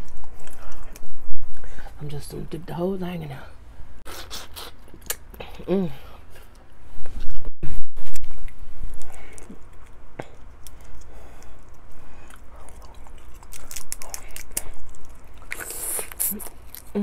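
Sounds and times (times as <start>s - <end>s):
person chewing: 0.0s - 1.7s, 4.1s - 6.7s, 8.2s - 17.0s
crab shell crackling: 9.0s - 17.0s.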